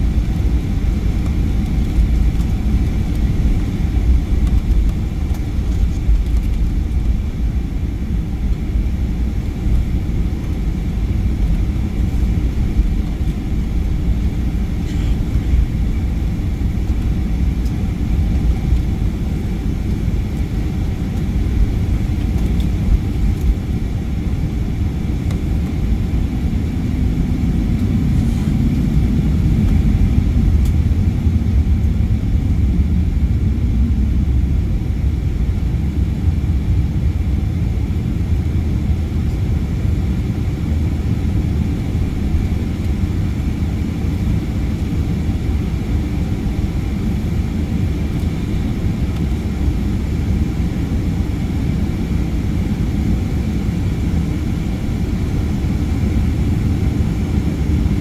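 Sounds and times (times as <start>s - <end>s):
airplane cabin rumble while taxiing: 0.0s - 58.0s
faint steady whine: 0.0s - 58.0s.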